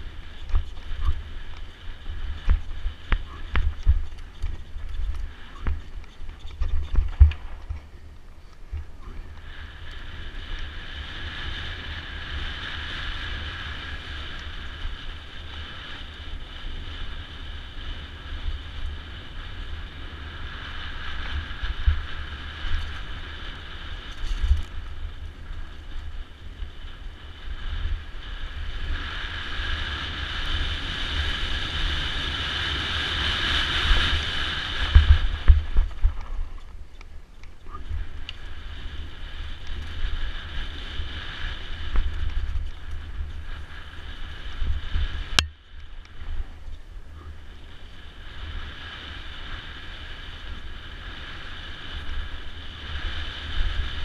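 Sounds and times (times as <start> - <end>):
wheels thudding over bumps: 0.0 - 10.8, 29.8 - 47.9
wind buffeting microphone: 0.0 - 54.0.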